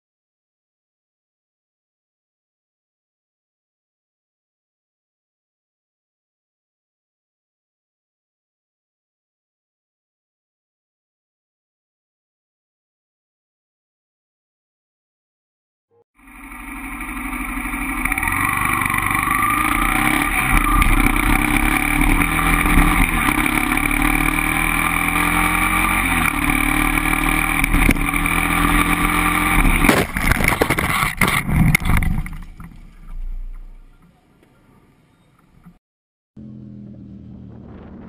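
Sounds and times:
motorcycle engine changing gear: 16.2s - 34.1s
motorcycle crashing knocks: 29.6s - 33.4s.

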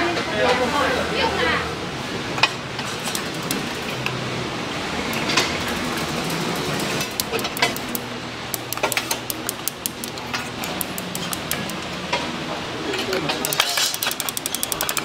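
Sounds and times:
gas lighter clicking: 7.1s - 11.8s.

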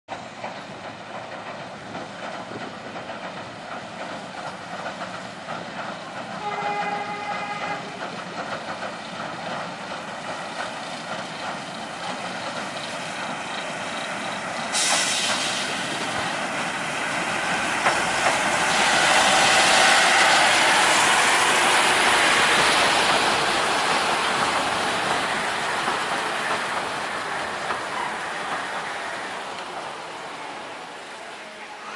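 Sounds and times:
diesel locomotive passing: 0.1s - 31.9s
wheels on rails: 0.1s - 31.9s
hiss: 8.7s - 31.1s.

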